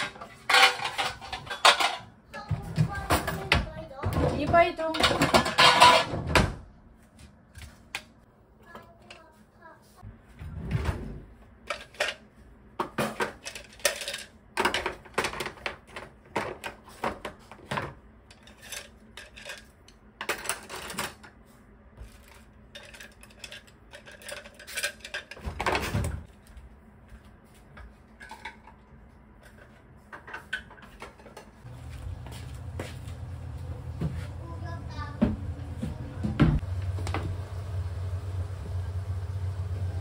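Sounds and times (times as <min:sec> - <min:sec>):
cutlery clinking and clattering: 0:00.0 - 0:02.1, 0:04.9 - 0:06.4, 0:11.7 - 0:12.2, 0:12.8 - 0:21.3, 0:22.7 - 0:26.2.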